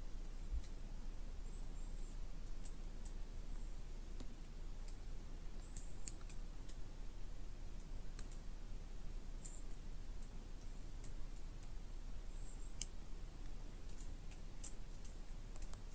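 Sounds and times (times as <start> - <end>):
faint high clicks: 4.2 - 6.8, 12.5 - 15.9.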